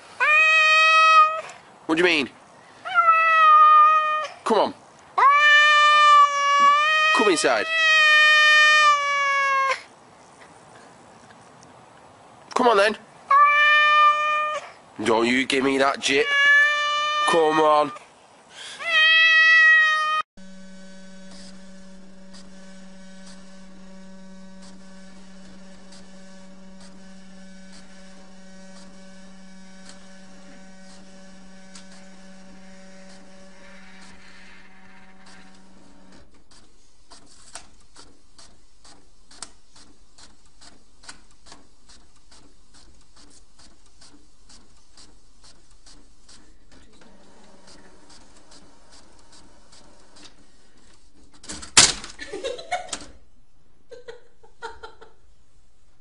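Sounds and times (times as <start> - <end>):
printer humming and clicking: 21.1 - 51.0
printer whirring as sheet feeds: 21.2 - 50.4.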